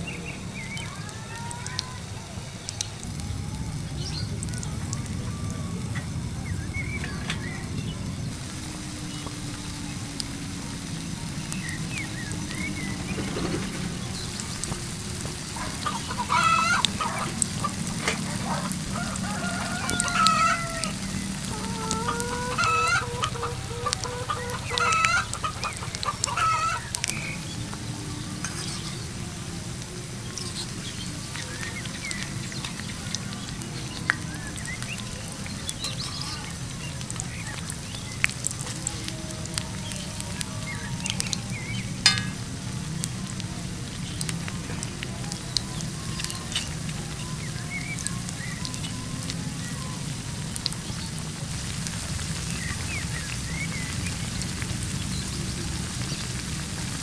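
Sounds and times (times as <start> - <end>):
batter frying in oil: 0.0 - 57.0
chickens clucking: 9.2 - 43.4
rooster crowing: 15.6 - 26.9.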